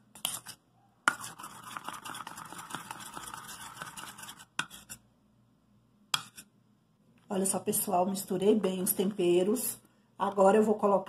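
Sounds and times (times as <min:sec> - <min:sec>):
metal spoon scraping ceramic bowl: 0:00.2 - 0:05.0.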